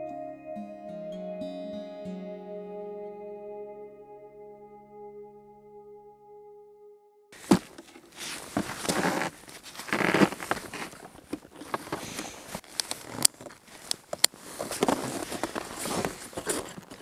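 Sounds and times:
rustling and crinkling: 7.4 - 17.0
sharp clicks and snaps: 12.7 - 14.4.

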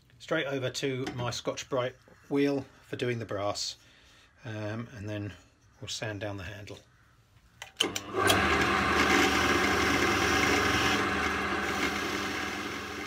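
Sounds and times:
clicks: 7.6 - 8.4
drill press motor running: 7.8 - 13.0.

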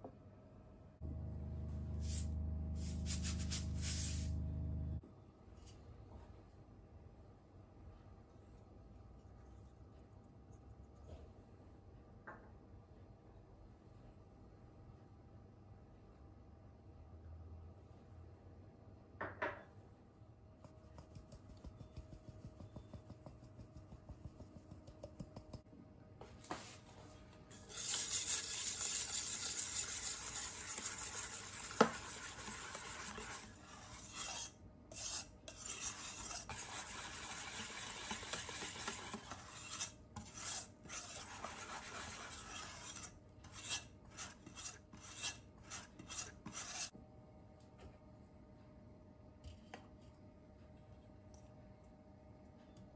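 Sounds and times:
wire whisk scraping metal bowl: 27.5 - 46.9
whisk clinking against bowl: 27.6 - 46.9.

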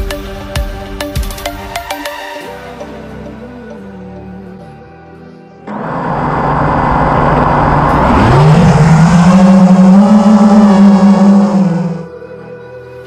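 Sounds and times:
jet ski engine revving: 5.7 - 12.1.

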